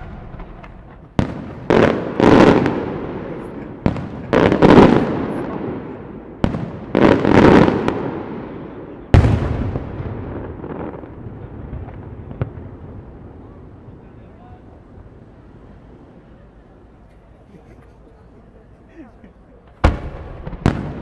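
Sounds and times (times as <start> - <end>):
firework bangs: 0.0 - 14.4, 19.6 - 21.0
rolling echo: 0.0 - 16.4, 19.6 - 21.0.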